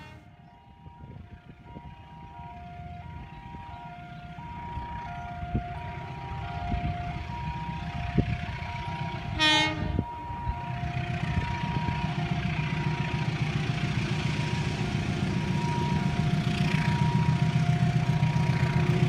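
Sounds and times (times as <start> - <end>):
train horn: 0.0 - 0.6, 8.8 - 10.3
train rumble: 0.0 - 19.0.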